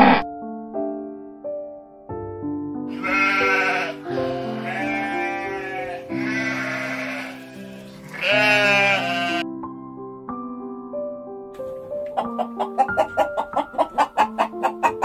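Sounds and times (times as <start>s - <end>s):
background music: 0.0s - 15.0s
sheep bleating: 2.9s - 9.4s.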